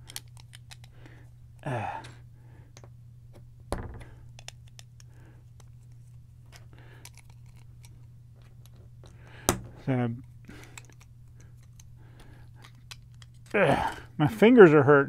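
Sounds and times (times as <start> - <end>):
plastic bricks clicking: 0.0 - 0.9
voice humming: 13.5 - 14.2.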